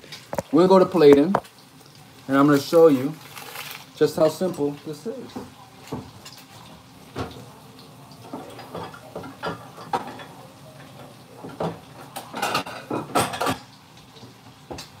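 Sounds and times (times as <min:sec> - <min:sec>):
dishes clinking: 0:04.5 - 0:07.5, 0:08.2 - 0:15.0.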